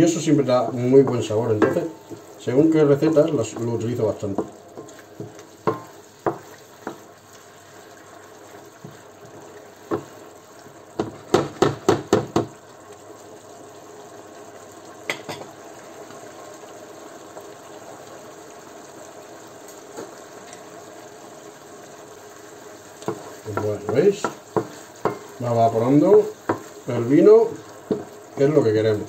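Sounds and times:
food sizzling in a frying pan: 0.0 - 29.0
wooden spatula knocking on pan: 0.6 - 2.3, 3.4 - 7.1, 9.8 - 10.2, 10.9 - 12.6, 23.0 - 25.4, 26.0 - 26.7, 27.5 - 28.2.

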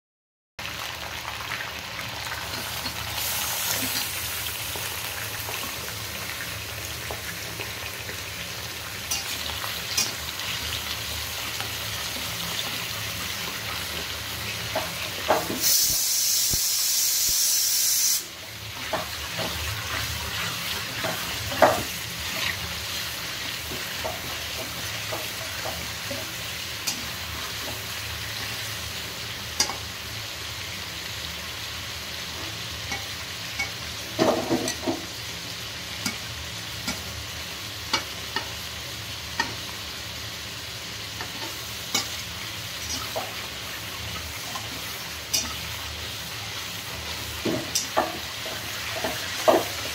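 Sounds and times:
chicken sizzling in oil: 0.6 - 49.9
loud high hiss: 15.5 - 18.4
spatula scraping and knocking pan: 18.8 - 22.6, 23.3 - 28.5, 32.4 - 35.1, 47.4 - 49.9.

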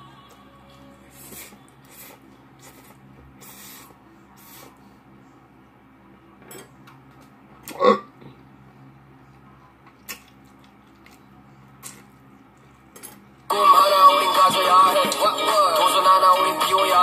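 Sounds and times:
person chewing: 1.2 - 4.7, 9.9 - 11.2.

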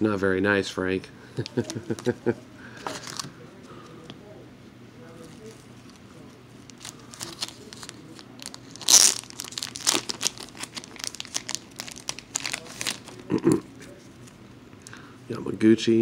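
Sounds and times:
plastic wrapping crinkling: 5.2 - 14.4.

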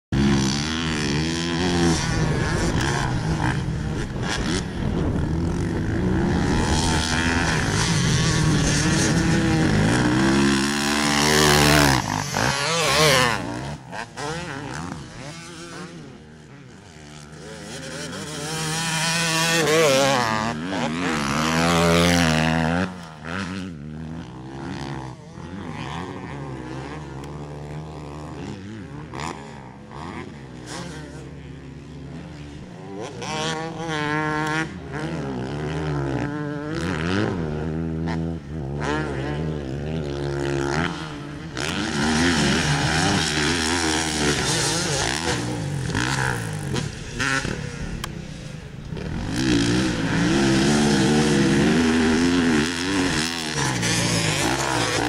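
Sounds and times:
dirt bike engines revving: 0.1 - 55.0.

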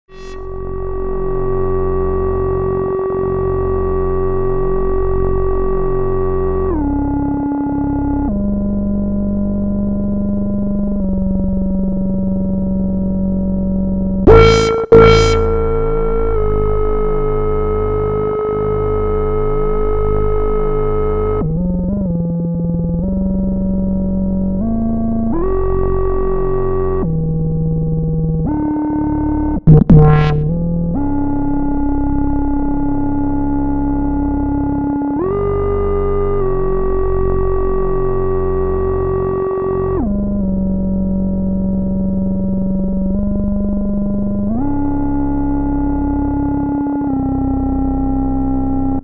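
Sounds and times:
sharp loud hits: 14.3 - 16.9, 29.7 - 30.6
synthesizer chords: 14.3 - 18.0, 29.7 - 30.7.

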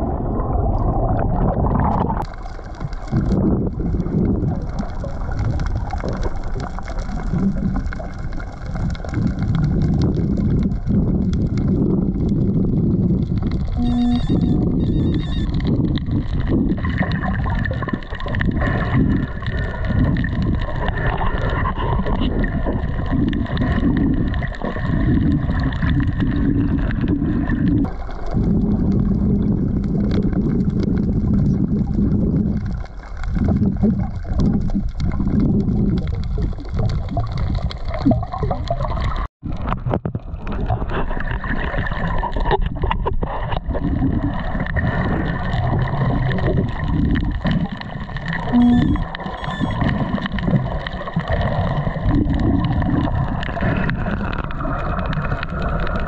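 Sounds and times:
water churning and gurgling: 0.0 - 56.0.

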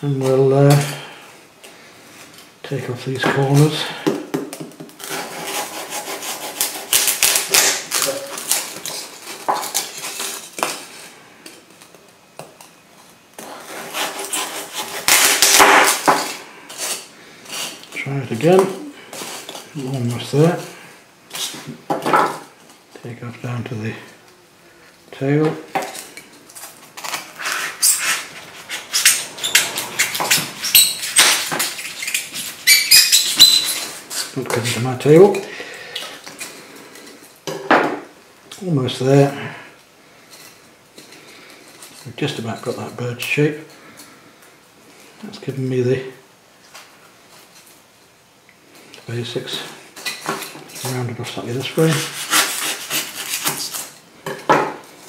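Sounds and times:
knife sawing through foam: 5.0 - 7.4, 13.5 - 15.6, 51.8 - 53.9.

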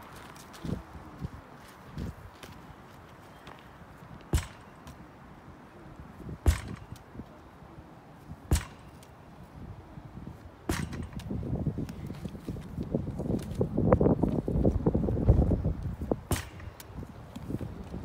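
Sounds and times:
rough scuffing: 0.0 - 5.0
ball smacking rebounder net: 4.3 - 4.7, 6.4 - 7.0, 10.7 - 11.2.

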